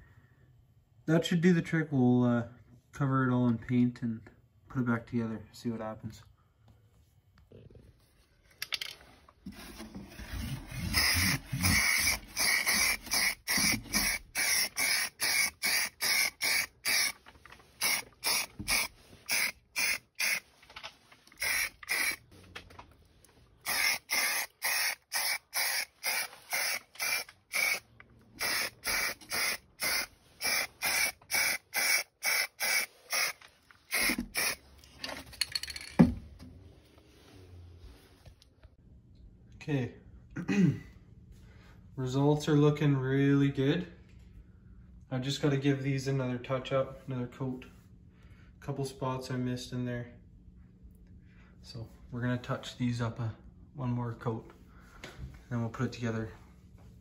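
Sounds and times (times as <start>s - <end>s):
spray paint can hissing bursts: 10.9s - 17.2s, 17.8s - 20.5s, 21.4s - 22.3s, 23.6s - 34.6s.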